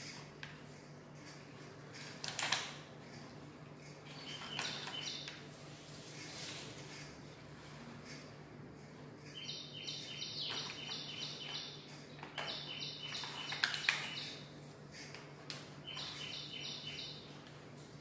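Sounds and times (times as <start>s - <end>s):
plastic toys clicking: 2.1s - 2.9s.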